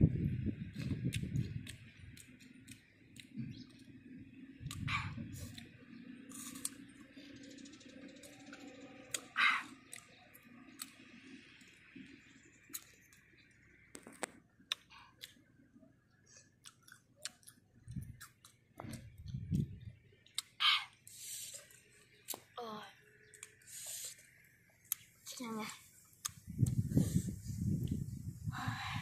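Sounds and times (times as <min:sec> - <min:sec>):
chewing and crunching fruit: 0:00.6 - 0:07.4, 0:08.1 - 0:22.6, 0:23.2 - 0:28.1
mouth clicks and smacks: 0:00.7 - 0:03.9, 0:04.6 - 0:06.8, 0:14.0 - 0:15.4.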